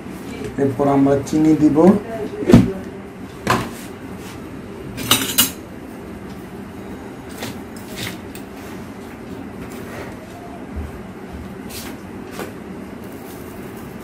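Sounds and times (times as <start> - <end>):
steady low hum: 0.0 - 14.0
kitchenware clinking: 5.0 - 5.6.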